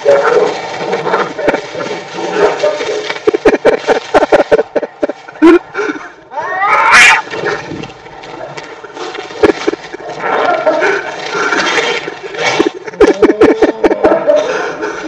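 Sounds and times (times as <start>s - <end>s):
cat screeching: 6.4s - 7.3s.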